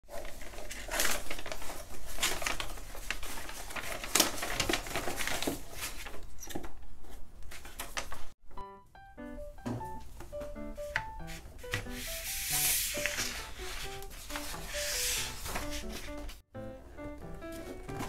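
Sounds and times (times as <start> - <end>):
wrapping paper rustling: 0.0 - 6.4, 7.5 - 8.4, 11.3 - 16.4
soft music: 8.4 - 18.0.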